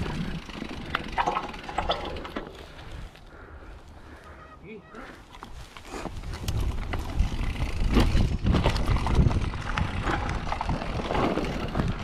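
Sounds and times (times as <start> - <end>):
bike rattling and knocking: 0.0 - 3.0, 5.3 - 12.0
wind rumbling on microphone: 5.6 - 12.0.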